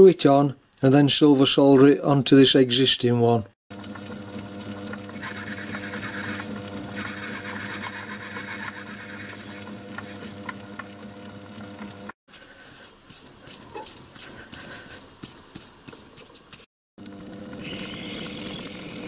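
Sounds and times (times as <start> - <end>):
lathe motor hum: 3.8 - 12.2.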